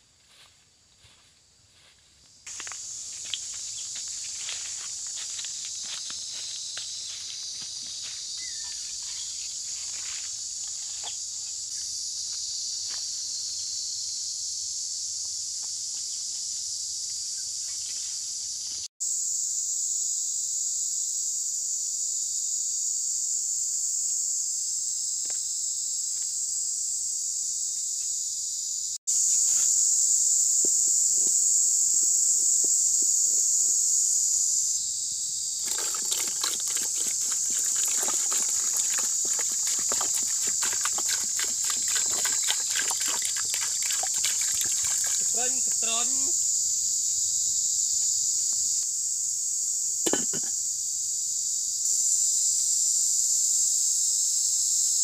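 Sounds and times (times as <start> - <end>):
high-pitched insect drone: 1.8 - 55.0
footsteps on dry leaves: 2.5 - 11.0, 35.6 - 45.8.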